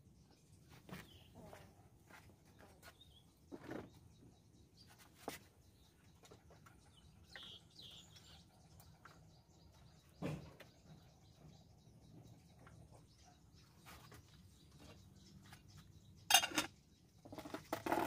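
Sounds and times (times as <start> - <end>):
firewood and cookware clattering: 10.2 - 10.7, 16.2 - 18.0.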